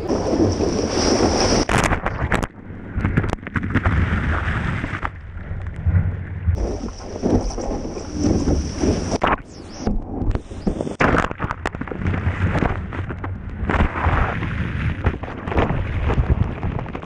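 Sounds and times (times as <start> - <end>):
water rushing and splashing: 0.0 - 2.5, 6.6 - 17.0
wave breaking: 0.0 - 17.0
wind rumble on microphone: 0.0 - 17.0.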